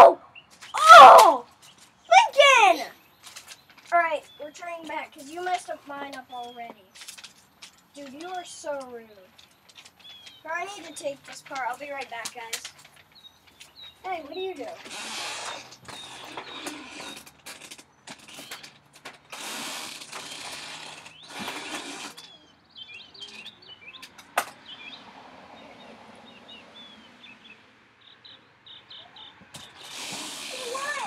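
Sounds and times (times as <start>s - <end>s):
small birds chirping: 0.0s - 31.0s
rustling noise: 1.4s - 22.5s, 29.5s - 31.0s.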